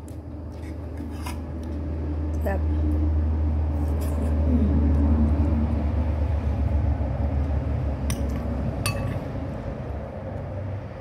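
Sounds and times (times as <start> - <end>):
engine rumbling: 0.0 - 11.0
spoon clinking on plate: 8.1 - 9.2.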